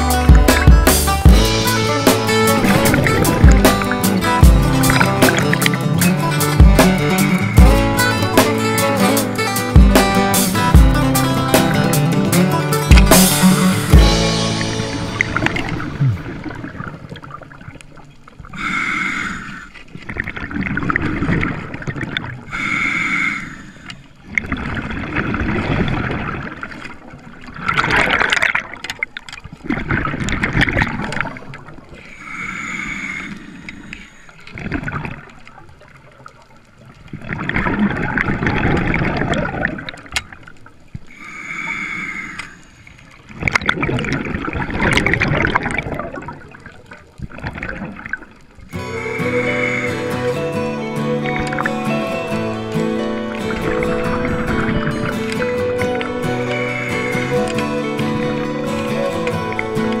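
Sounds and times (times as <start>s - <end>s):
underwater bubbling exhalations: 1.6s - 8.6s, 14.5s - 22.7s, 37.1s - 40.1s, 43.3s - 60.0s
hissing inhalations: 18.6s - 19.8s, 22.5s - 24.0s, 32.0s - 34.4s, 48.8s - 52.8s, 55.8s - 59.8s.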